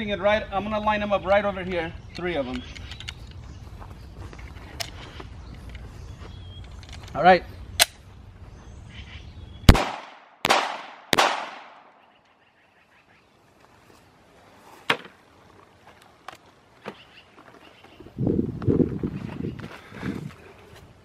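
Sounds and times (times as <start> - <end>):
pistol shots with echo: 9.7 - 12.0.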